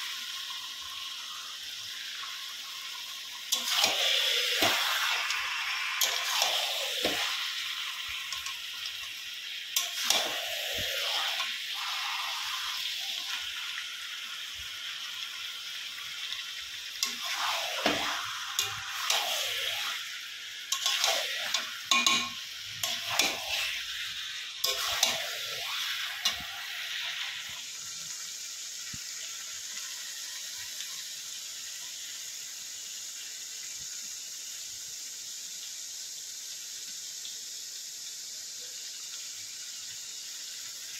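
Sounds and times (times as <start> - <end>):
steady hiss: 0.0 - 40.9
metal utensil scraping a pot: 3.5 - 5.0, 6.0 - 7.3, 9.8 - 11.5, 17.0 - 20.0, 20.7 - 23.9, 24.6 - 26.5.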